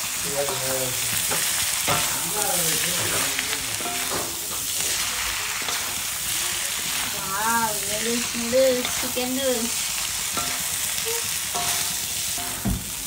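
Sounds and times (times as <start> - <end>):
metal spatula scraping a pan: 0.0 - 12.7
noodles sizzling in a wok: 0.0 - 13.0.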